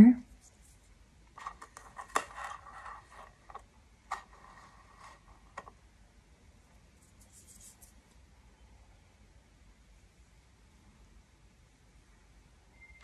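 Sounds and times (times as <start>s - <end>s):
soft rustle: 0.3s - 5.7s, 6.8s - 8.2s.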